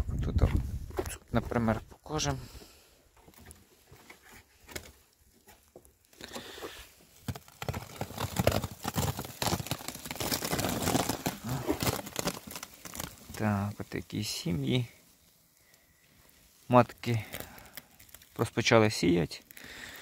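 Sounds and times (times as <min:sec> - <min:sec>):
cloth rustling and crackling: 0:06.8 - 0:18.5.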